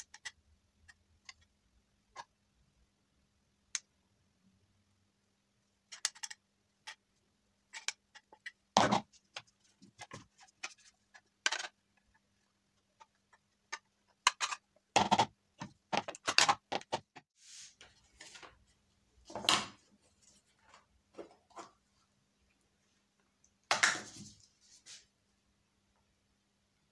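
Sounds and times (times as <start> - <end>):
plastic parts clicking and knocking: 0.0 - 2.4, 5.8 - 17.2.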